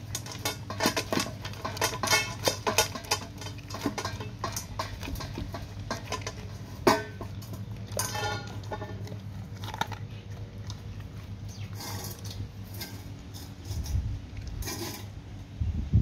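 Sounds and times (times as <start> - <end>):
dog crunching kibble in metal bowl: 0.0 - 15.4.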